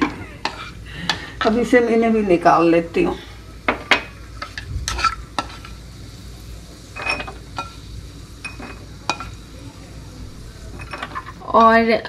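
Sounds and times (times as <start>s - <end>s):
wooden spatula scraping frying pan: 0.0s - 1.7s, 4.4s - 5.8s.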